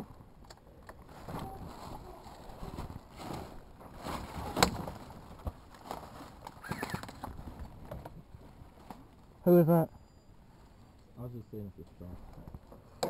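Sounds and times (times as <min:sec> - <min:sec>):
clothing and gear rustling: 0:01.0 - 0:09.1.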